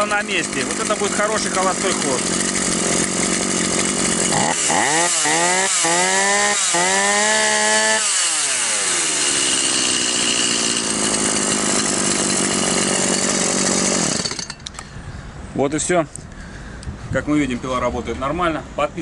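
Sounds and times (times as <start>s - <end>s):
chainsaw engine revving and idling: 0.0s - 14.5s.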